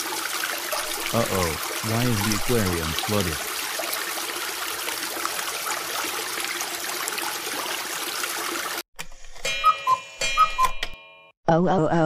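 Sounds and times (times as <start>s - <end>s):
rushing water: 0.0s - 8.8s
chiming notes: 9.4s - 11.4s.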